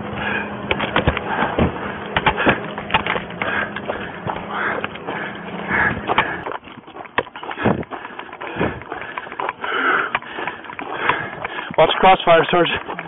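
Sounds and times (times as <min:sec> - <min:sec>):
footsteps on gravel: 0:00.2 - 0:13.0
dull thuds: 0:00.6 - 0:08.9.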